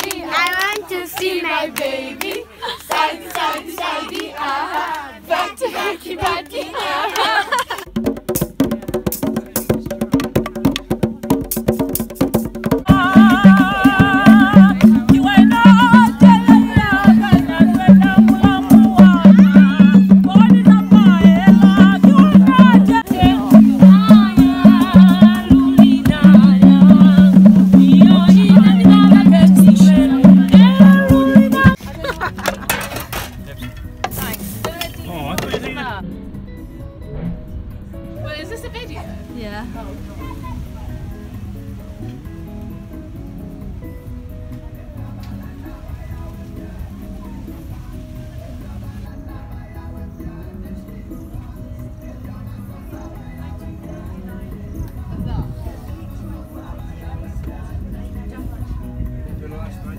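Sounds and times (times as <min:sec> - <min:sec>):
children clapping hands: 0:00.0 - 0:05.1, 0:06.2 - 0:07.9
rhythmic drum beat: 0:05.8 - 0:39.0
person singing: 0:12.9 - 0:31.8.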